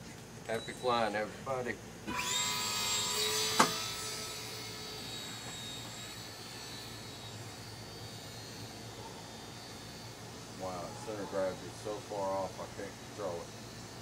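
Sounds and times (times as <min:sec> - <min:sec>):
model airplane motor whining: 0:02.0 - 0:14.0
sharp click: 0:03.6 - 0:03.8.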